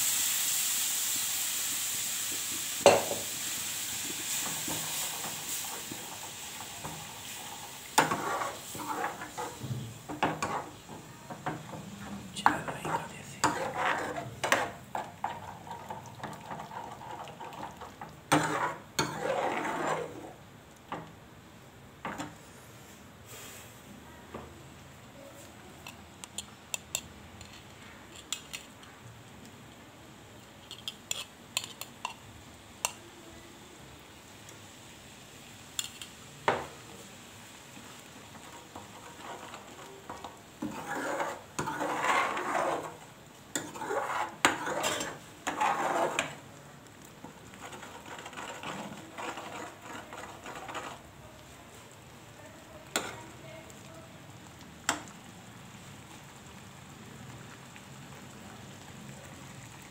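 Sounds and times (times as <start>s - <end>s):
ladle scraping metal pan: 6.8s - 10.8s, 12.4s - 20.4s, 38.4s - 46.4s, 47.5s - 51.1s.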